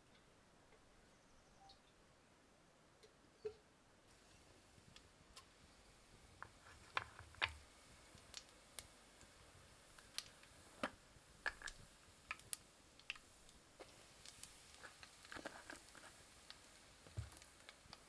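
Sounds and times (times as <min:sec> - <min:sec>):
seeds crackling in hot oil: 0:04.1 - 0:18.0.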